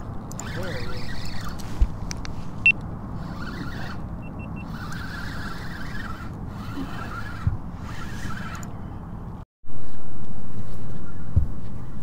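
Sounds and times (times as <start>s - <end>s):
engine humming: 0.0s - 9.4s.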